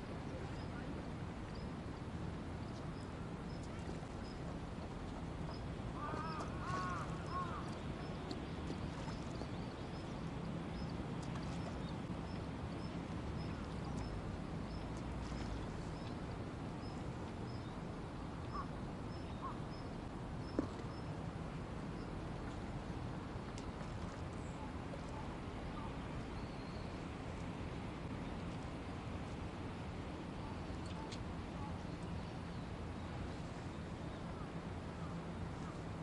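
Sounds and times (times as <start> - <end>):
river background noise: 0.0 - 36.0
bird calling: 6.0 - 7.7.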